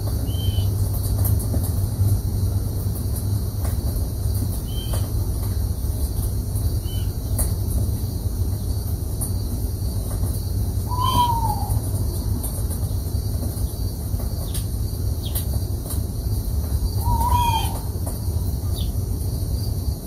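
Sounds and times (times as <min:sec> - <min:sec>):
steady low rumble: 0:00.0 - 0:20.0
bird call rising and falling: 0:10.8 - 0:11.8, 0:17.0 - 0:18.0
high bird chirps: 0:10.9 - 0:11.8, 0:16.9 - 0:17.9.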